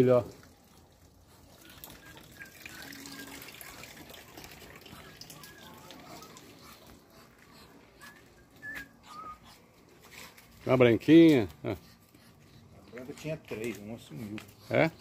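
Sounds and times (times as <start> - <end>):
birds chirping: 1.6 - 10.1.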